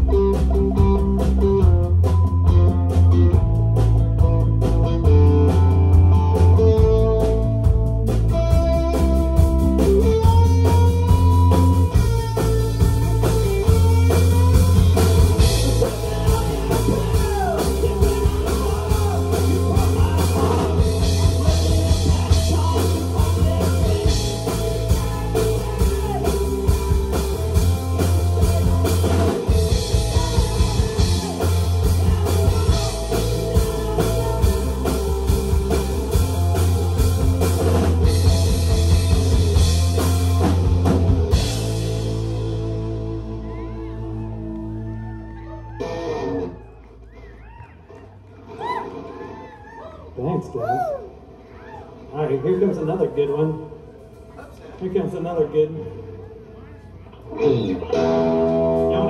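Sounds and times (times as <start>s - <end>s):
drum kit: 0.0s - 45.8s
electric guitar: 0.0s - 52.1s, 56.0s - 59.0s
bass guitar: 0.0s - 59.0s.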